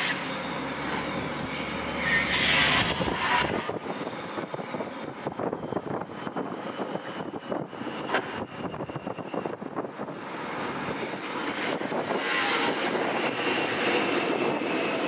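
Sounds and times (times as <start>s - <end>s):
train rumble: 0.0s - 15.0s.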